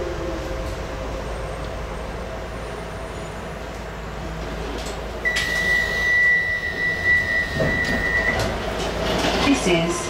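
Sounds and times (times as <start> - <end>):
train humming: 0.0 - 10.0
door warning beep: 5.2 - 8.5.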